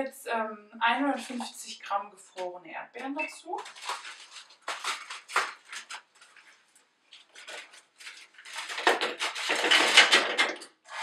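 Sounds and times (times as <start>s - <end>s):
frozen berries clattering into metal bowl: 3.0s - 6.3s, 7.2s - 11.0s
cardboard carton crackling: 3.5s - 10.5s.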